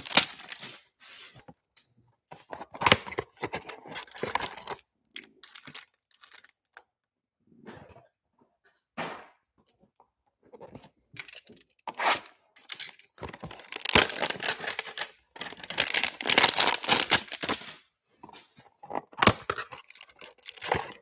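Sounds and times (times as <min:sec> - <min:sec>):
plastic wrapping crinkling and tearing: 0:00.0 - 0:01.2, 0:02.8 - 0:06.6, 0:12.7 - 0:17.8, 0:19.0 - 0:21.0.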